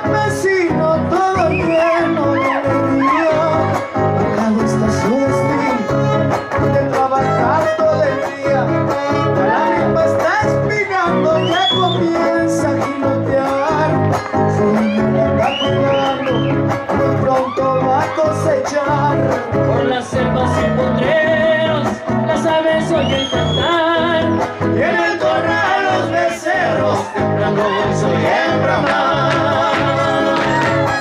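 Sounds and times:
strummed string rhythm: 0.0s - 23.0s, 23.6s - 31.0s
violin melody with slides: 1.8s - 10.4s, 27.5s - 31.0s.

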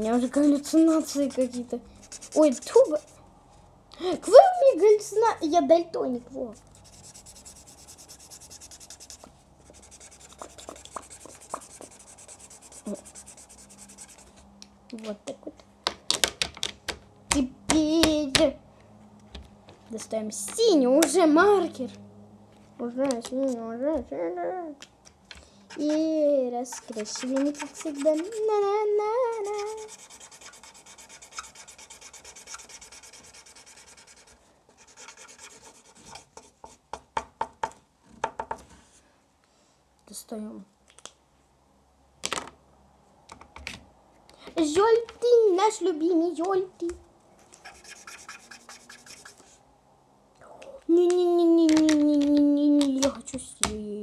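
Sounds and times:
marker scribbling on paper: 0.0s - 3.2s, 6.4s - 14.4s, 25.7s - 26.0s, 26.7s - 28.6s, 29.2s - 36.8s, 47.4s - 49.6s.

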